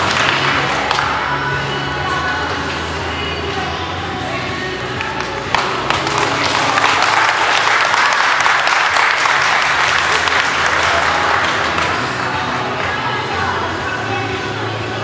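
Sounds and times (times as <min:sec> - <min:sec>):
group of people clapping: 0:00.0 - 0:01.5, 0:04.8 - 0:13.5
voices: 0:09.6 - 0:15.0.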